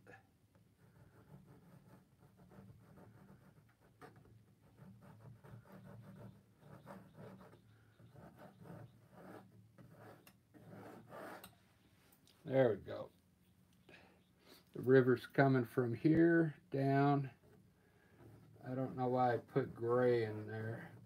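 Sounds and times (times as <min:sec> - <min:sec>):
palette knife scraping paint: 0:00.8 - 0:11.6, 0:17.3 - 0:21.0.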